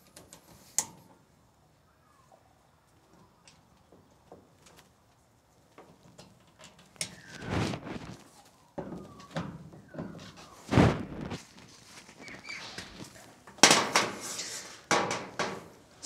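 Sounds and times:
short squeaks: 12.1s - 13.1s.

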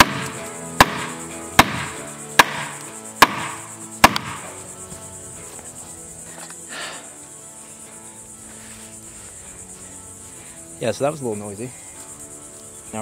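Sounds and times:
log knocking wood: 0.0s - 4.5s
background music: 0.0s - 13.0s.

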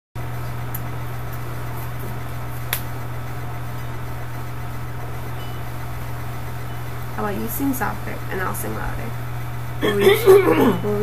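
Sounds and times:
electrical hum and hiss: 0.2s - 11.0s.

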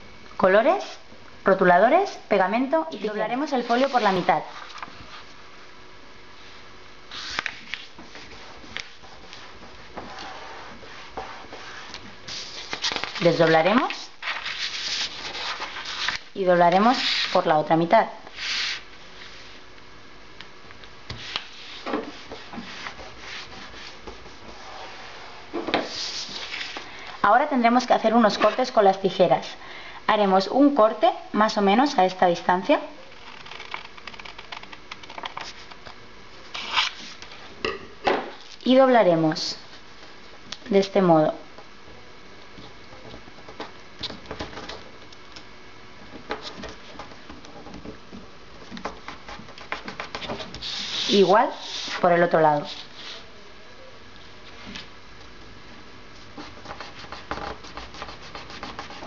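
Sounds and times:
paper rubbing and rustling: 7.1s - 17.4s, 25.9s - 26.8s, 36.5s - 37.2s
paper rustling and ticking: 12.3s - 13.6s, 33.1s - 35.8s.

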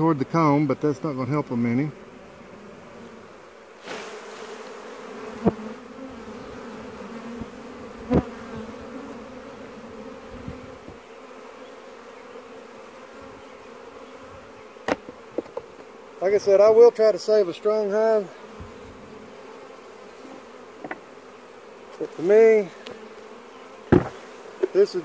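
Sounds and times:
swarm of bees buzzing: 0.0s - 25.0s
sharp knocks: 23.9s - 24.2s.

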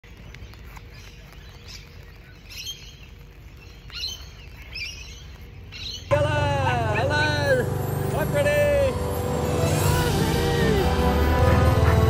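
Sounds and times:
raindrops ticking on umbrella: 0.0s - 6.1s
birds chirping: 0.0s - 12.0s.

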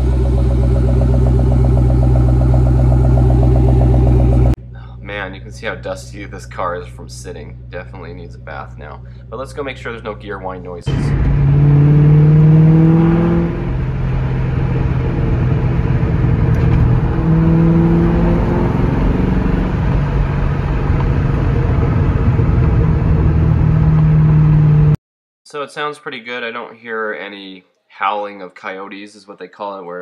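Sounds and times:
car engine accelerating: 0.0s - 4.6s, 10.9s - 25.0s
road noise inside car: 0.0s - 4.6s, 10.9s - 25.0s.

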